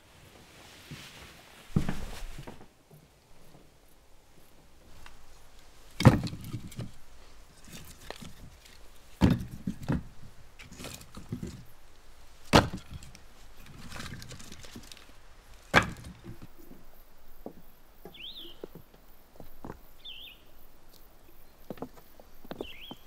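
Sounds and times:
scraping and rustling: 0.2 - 2.8, 4.8 - 17.6.

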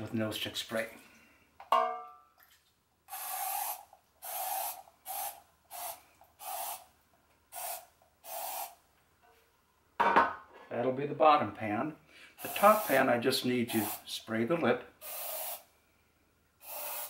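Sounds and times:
aerosol spray can hissing: 3.1 - 6.9, 7.5 - 8.8, 12.4 - 13.1, 13.7 - 14.1, 15.0 - 15.7, 16.6 - 17.0.

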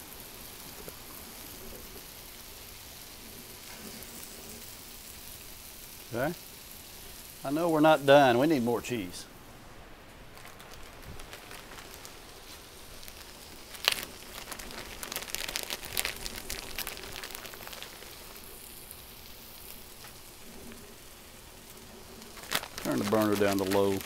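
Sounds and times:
food sizzling on a griddle: 0.0 - 24.0
plastic bag crinkling: 10.0 - 20.9, 21.7 - 24.0.

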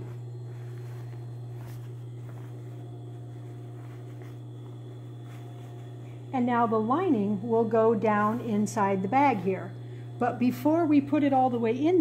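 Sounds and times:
fabric rustling: 0.0 - 6.3
steady low hum: 0.0 - 12.0.

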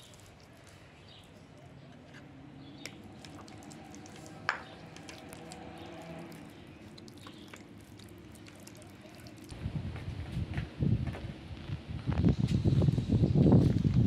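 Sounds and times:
wet squishing of raw chicken: 0.0 - 1.4, 2.9 - 9.6.

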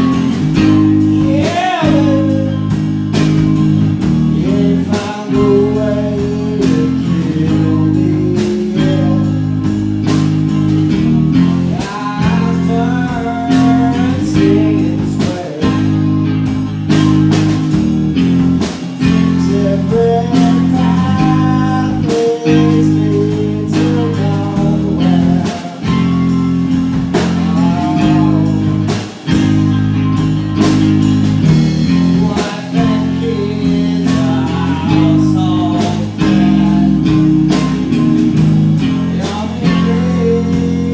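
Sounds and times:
man singing into a microphone: 0.0 - 2.9, 4.2 - 9.7, 11.3 - 16.2, 19.0 - 26.5, 27.1 - 29.0, 31.8 - 38.0, 38.9 - 40.9
electric guitar and bass chords: 0.0 - 40.9
drum kit hits: 8.4 - 40.9.

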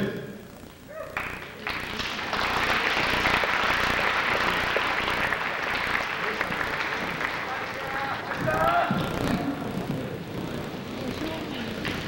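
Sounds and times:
audience applause: 1.2 - 9.8.

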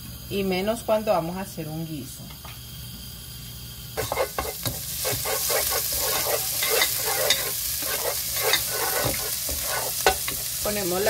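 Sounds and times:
garlic sizzling in hot oil: 0.0 - 11.0
wooden spatula scraping pot: 4.0 - 10.5.

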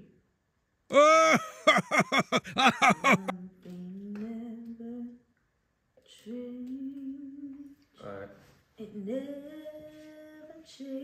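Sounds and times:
person humming: 0.9 - 3.3
person singing a vocal run: 0.9 - 5.2.

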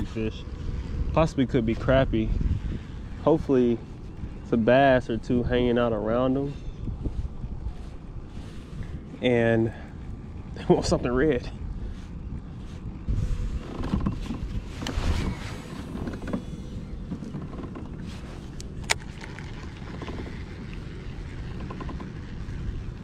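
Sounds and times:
wind rumble on microphone: 0.0 - 23.0
fishing rod handling rustle: 6.8 - 10.6, 11.6 - 23.0.

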